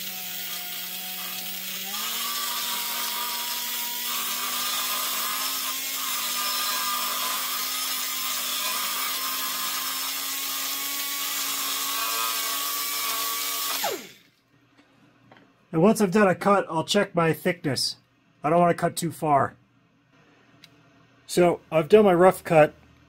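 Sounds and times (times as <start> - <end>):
air cutter whining: 0.0 - 14.4.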